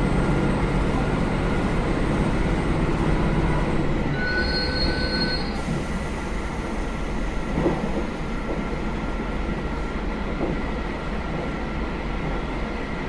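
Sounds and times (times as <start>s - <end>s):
thin high squeal: 4.1s - 5.6s.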